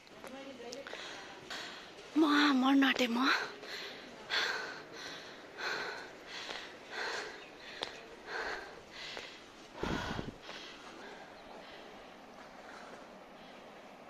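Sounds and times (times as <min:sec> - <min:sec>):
person panting hard: 0:03.5 - 0:12.1.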